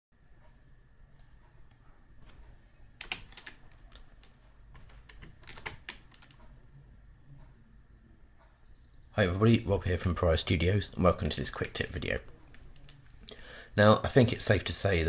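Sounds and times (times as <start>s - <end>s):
faint keyboard keys clicking: 1.2s - 6.6s.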